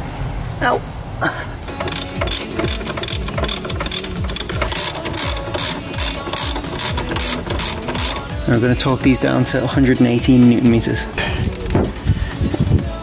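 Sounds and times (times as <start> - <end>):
ratchet wrench clicking: 1.7 - 8.4, 11.4 - 11.8.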